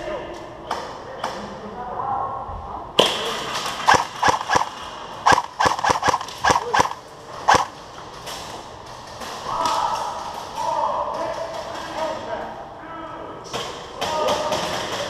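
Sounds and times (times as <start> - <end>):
airsoft gun shots: 3.7 - 7.7.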